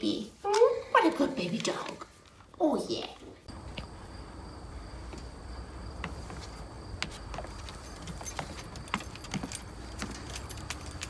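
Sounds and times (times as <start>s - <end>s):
footsteps on deck stairs: 3.5s - 11.0s.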